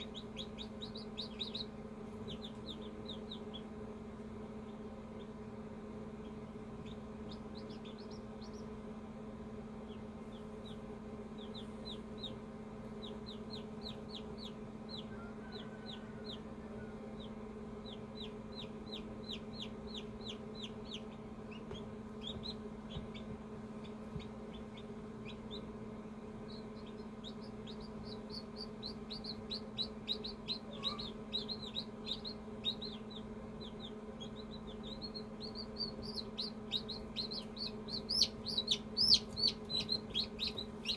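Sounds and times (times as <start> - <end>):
chick peeping: 0.0 - 40.9
steady low hum: 0.0 - 40.9.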